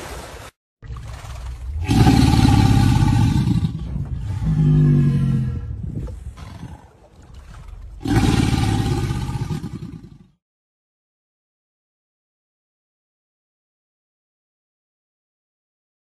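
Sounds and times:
crocodile bellowing: 0.8 - 5.8, 8.0 - 10.4.

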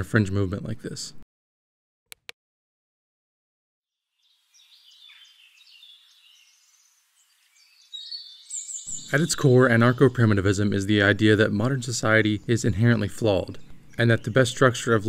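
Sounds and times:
birds chirping: 4.2 - 15.0.

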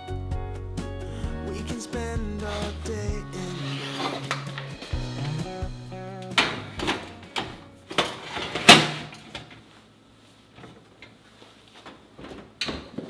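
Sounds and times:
metal tray clattering on oven rack: 6.4 - 9.2.

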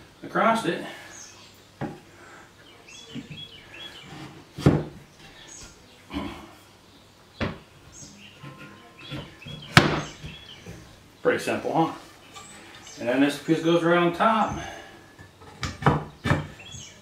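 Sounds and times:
wooden ladder parts knocking: 8.4 - 11.0, 14.3 - 17.0.

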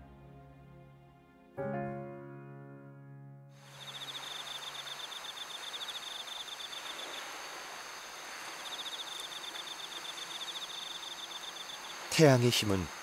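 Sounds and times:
outdoor background hiss: 3.5 - 13.0
insect trilling: 3.6 - 13.0.

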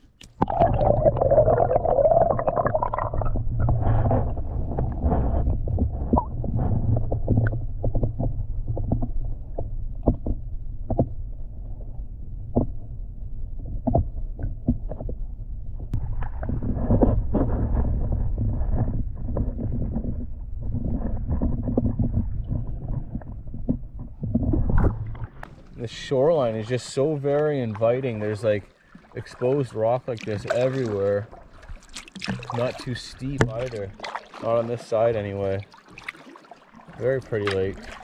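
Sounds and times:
water sloshing against hull: 0.0 - 38.0
low rumble: 0.5 - 27.0
paddle strokes in water: 3.6 - 11.1, 15.9 - 38.0.

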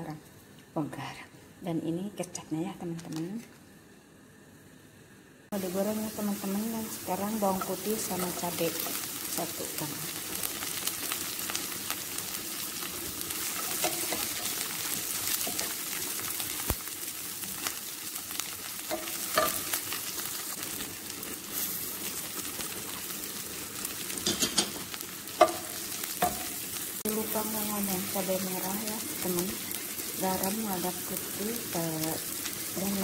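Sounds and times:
food sizzling in hot oil: 5.5 - 33.0
spatula knocking and scraping pan: 13.6 - 14.6, 18.9 - 19.8, 24.2 - 24.8, 25.4 - 26.6.

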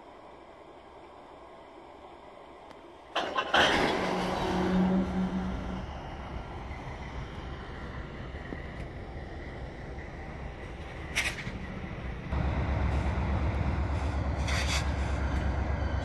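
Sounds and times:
low background noise: 0.0 - 3.7
freight train passing: 0.0 - 16.0.

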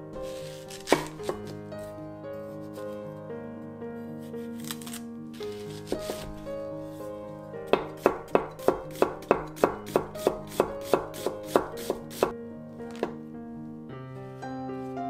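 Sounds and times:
soft background music: 0.0 - 15.0
knife slicing on cutting board: 0.2 - 1.9, 2.6 - 3.0, 4.4 - 6.4, 7.7 - 12.3.

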